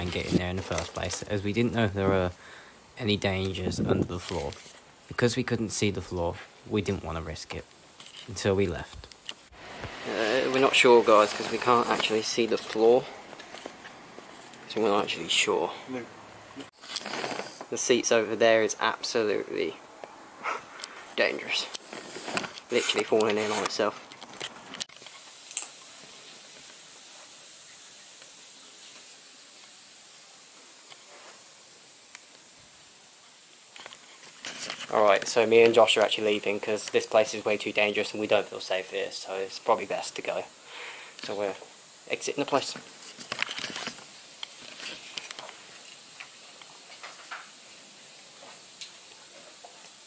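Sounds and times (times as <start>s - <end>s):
footsteps crunching on rubble: 0.0s - 2.3s
steady background hiss: 0.0s - 50.0s
brief crackle: 20.8s - 27.5s.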